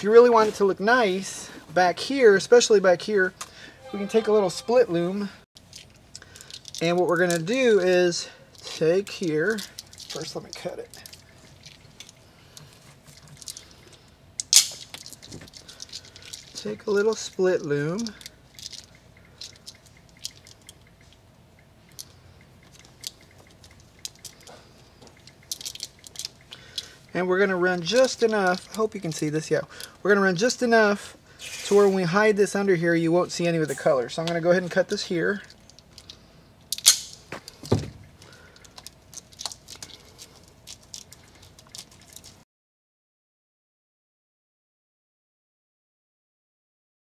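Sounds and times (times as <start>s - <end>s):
plastic tubing clicks and crinkles: 5.6s - 7.5s, 8.6s - 13.7s, 21.9s - 24.5s, 25.1s - 26.9s, 38.2s - 42.4s.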